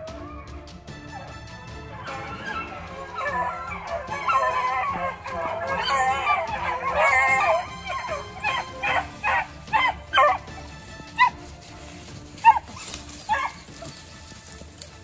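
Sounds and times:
beagles baying and yelping: 0.0 - 15.0.

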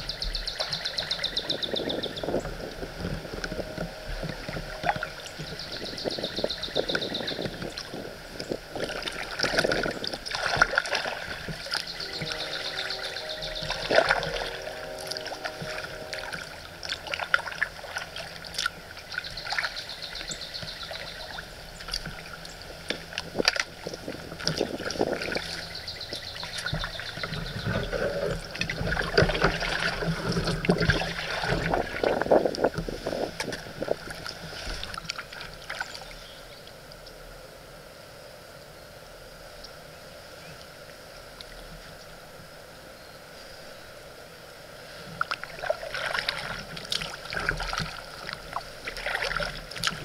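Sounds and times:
paddle splashing water: 0.0 - 37.0, 44.7 - 50.0.

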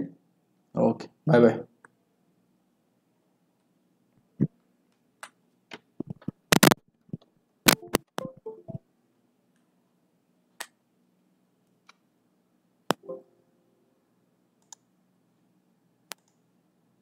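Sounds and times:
computer mouse clicks: 14.6 - 14.9, 16.1 - 16.4.

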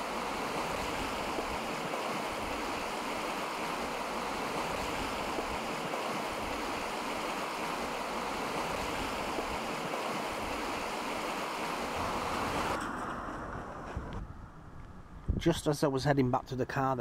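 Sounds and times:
rushing floodwater: 0.0 - 13.4
car passing: 10.7 - 15.2.

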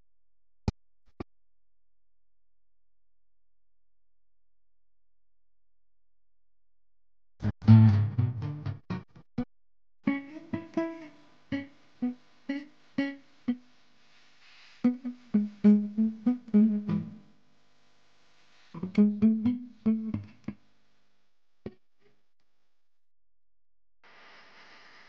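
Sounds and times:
plucked guitar notes: 7.5 - 9.2, 10.1 - 12.2, 14.9 - 17.2, 18.8 - 20.6.

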